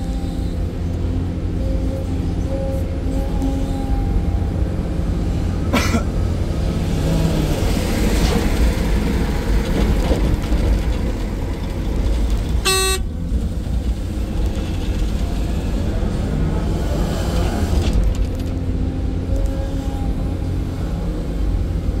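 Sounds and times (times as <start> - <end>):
excavator diesel engine running: 0.0 - 22.0
short horn toot: 12.6 - 13.1.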